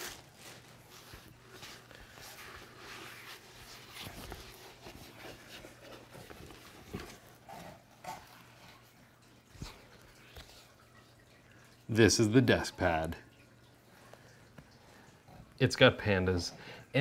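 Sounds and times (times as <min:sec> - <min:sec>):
cloth rustling and flapping: 0:00.0 - 0:09.0.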